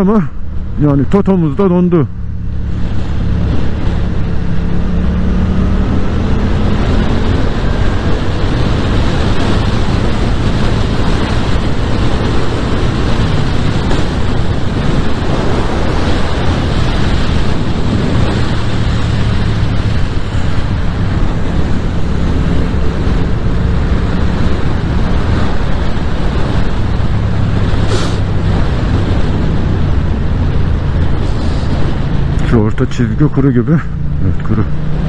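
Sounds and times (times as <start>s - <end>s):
motorcycle engine cruising: 0.0s - 35.0s
wind noise on microphone: 2.1s - 35.0s
short hiss: 27.9s - 28.2s.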